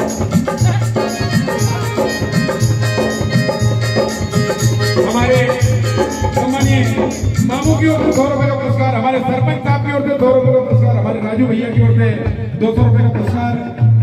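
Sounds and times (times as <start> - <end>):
person singing: 0.0 - 8.2
electronic organ: 0.0 - 10.5
hand drum beat: 0.0 - 14.0.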